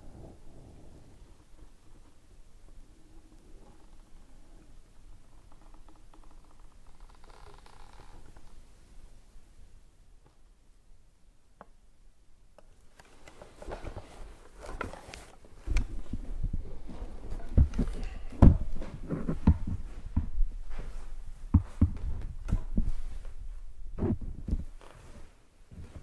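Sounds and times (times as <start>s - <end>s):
rustling: 0.0s - 10.5s, 12.7s - 26.0s
low thumps and knocks: 15.6s - 24.8s.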